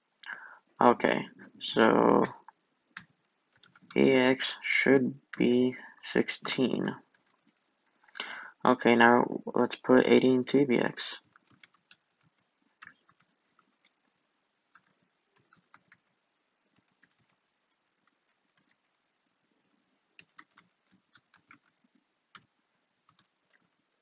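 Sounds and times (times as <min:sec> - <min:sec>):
computer keyboard typing: 0:03.0 - 0:04.0, 0:07.1 - 0:07.7, 0:11.2 - 0:19.0, 0:20.1 - 0:24.0.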